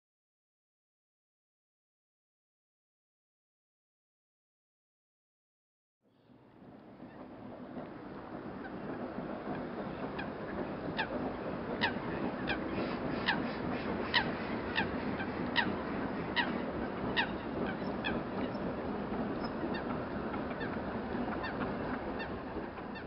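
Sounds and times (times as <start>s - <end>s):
distant steam train rumble: 6.1s - 23.0s
geese honking: 9.5s - 23.0s.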